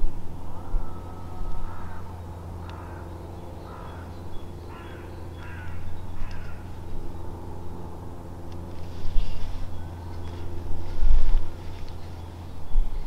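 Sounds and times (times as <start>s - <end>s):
steady low hum: 0.0s - 13.0s
bird harsh calls: 0.4s - 7.4s.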